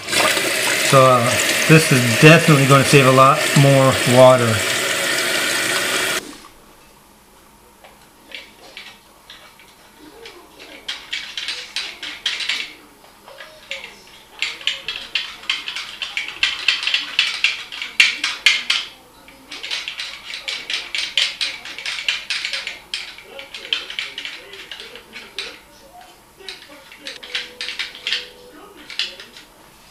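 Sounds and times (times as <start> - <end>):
small metal clicks and rattles: 8.3 - 25.6.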